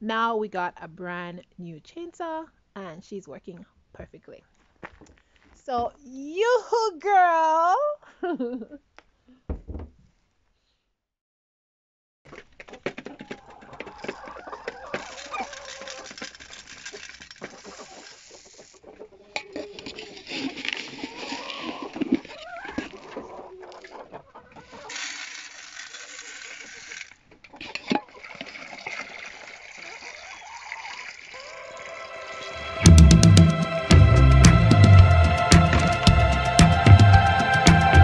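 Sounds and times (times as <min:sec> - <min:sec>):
chickens clucking: 0:12.3 - 0:16.5, 0:17.4 - 0:25.0, 0:29.8 - 0:38.0
rustling noise: 0:12.3 - 0:27.7.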